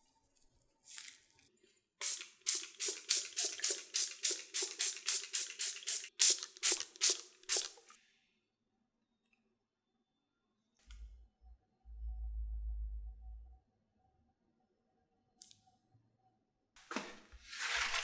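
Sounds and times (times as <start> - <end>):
spray bottle squirts: 2.0 - 8.0.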